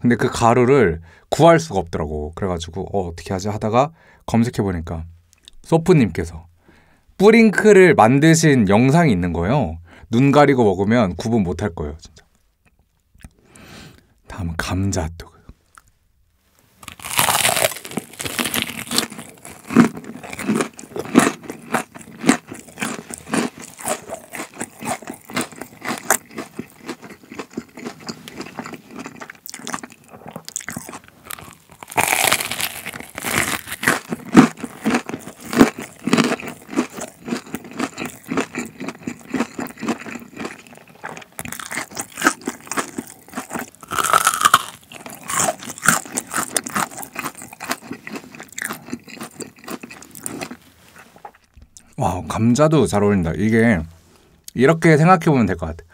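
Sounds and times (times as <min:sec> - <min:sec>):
crunchy biting and chewing: 0:16.8 - 0:51.9.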